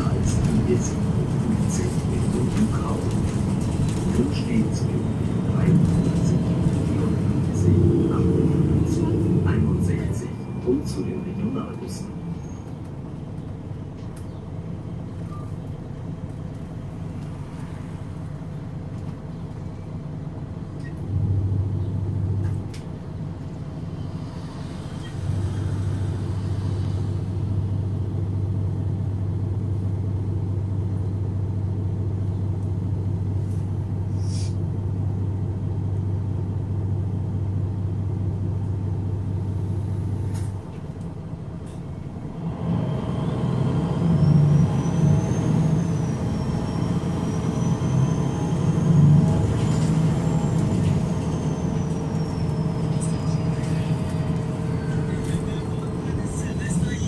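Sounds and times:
diesel bus engine idling: 0.0 - 57.0
bus engine revving up: 23.4 - 28.4, 41.7 - 57.0.

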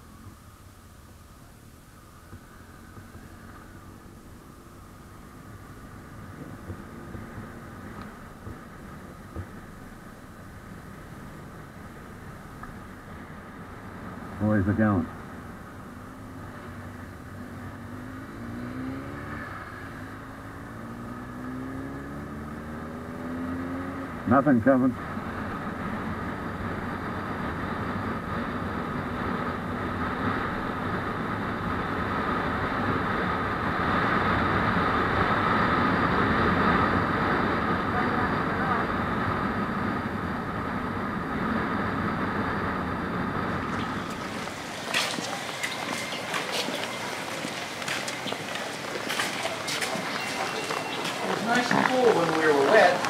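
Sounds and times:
motorcycle engine: 15.1 - 53.0
motorcycle engine accelerating: 15.8 - 24.4.

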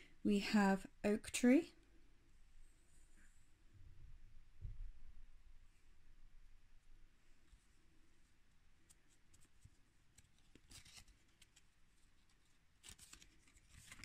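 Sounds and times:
laminated card rustling: 8.8 - 14.0.

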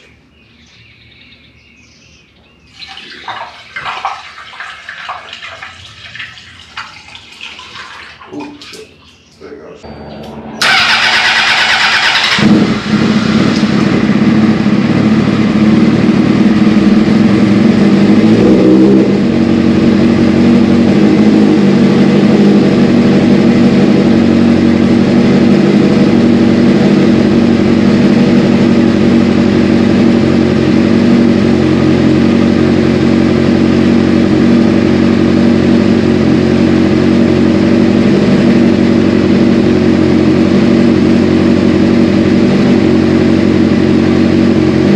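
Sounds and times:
motorcycle engine starting and idling: 9.8 - 44.9.

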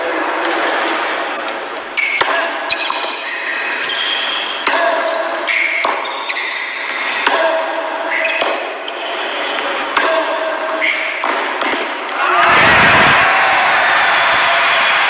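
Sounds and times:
sneakers squeaking on court: 1.4 - 4.6, 5.4 - 7.2, 8.1 - 9.8, 10.8 - 11.4
tennis ball struck and bouncing: 9.9 - 10.3, 11.1 - 12.0.

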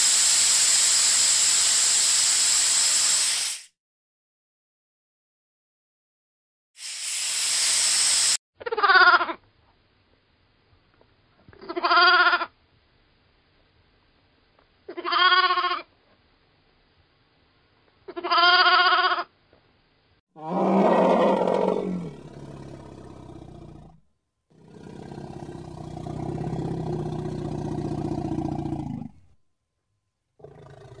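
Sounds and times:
sheep bleating: 14.9 - 15.8, 18.1 - 19.3
harsh animal call: 20.4 - 24.0, 24.6 - 29.2
long low pulsing growl: 20.4 - 24.0, 24.6 - 29.3.

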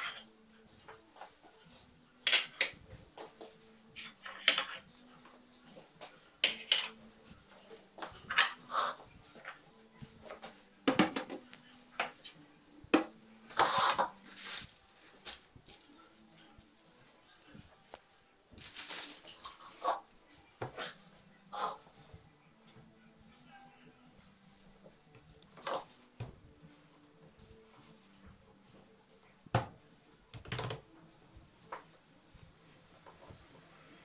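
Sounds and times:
plastic bag rustling: 13.9 - 16.0, 18.5 - 19.8.

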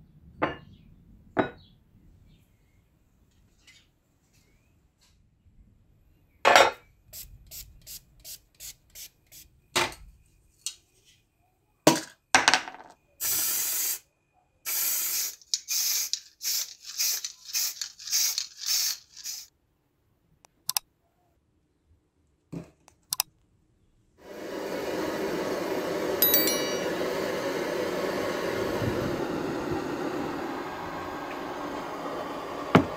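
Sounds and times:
spray can hissing: 7.2 - 9.5, 13.2 - 14.0, 14.7 - 19.5.

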